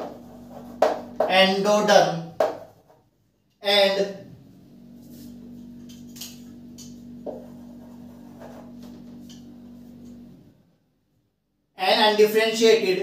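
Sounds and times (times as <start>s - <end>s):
steady low hum: 0.0s - 1.9s, 4.1s - 10.6s.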